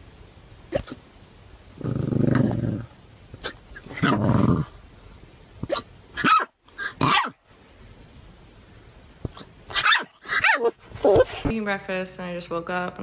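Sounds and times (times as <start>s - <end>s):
puppy hiccuping: 0.7s - 1.1s, 1.8s - 4.7s, 5.6s - 7.4s, 9.2s - 11.4s
puppy growling: 1.7s - 4.8s
puppy yelping barks: 3.4s - 4.3s, 5.6s - 7.4s, 9.3s - 11.3s.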